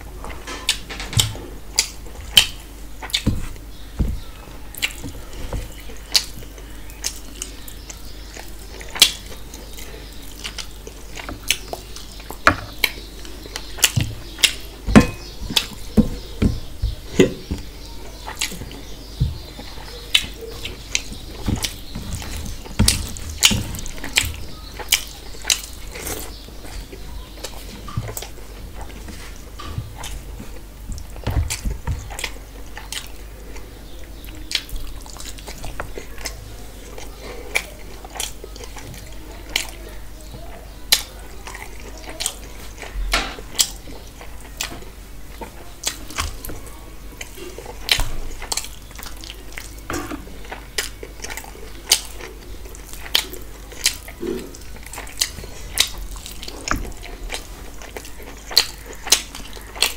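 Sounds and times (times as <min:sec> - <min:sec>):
wet chewing and lip smacking: 0:06.0 - 0:16.4, 0:17.2 - 0:39.9, 0:47.2 - 0:59.9.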